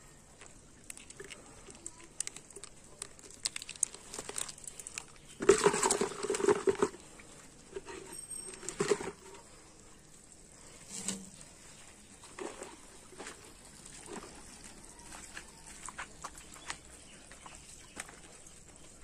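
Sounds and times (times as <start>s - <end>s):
plastic sachet crinkling: 0.4s - 6.8s
water splashing in a jug: 0.9s - 7.9s.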